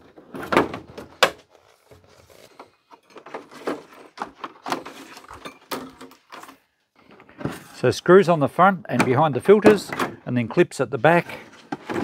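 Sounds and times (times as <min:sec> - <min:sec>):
plastic parts clicking and rattling: 0:00.0 - 0:07.6, 0:11.4 - 0:12.0.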